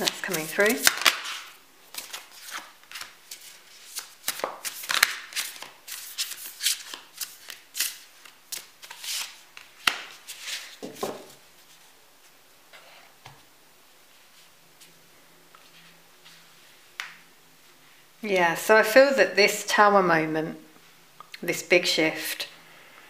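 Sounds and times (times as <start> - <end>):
cards slapping and sliding: 0.0 - 11.4.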